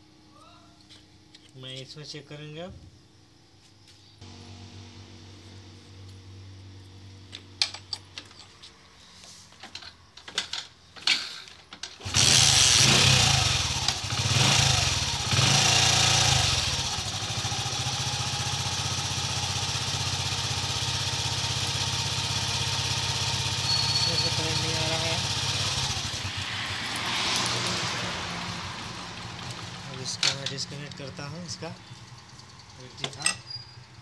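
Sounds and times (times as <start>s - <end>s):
motorcycle engine starting and revving: 4.2s - 7.9s, 12.0s - 34.0s.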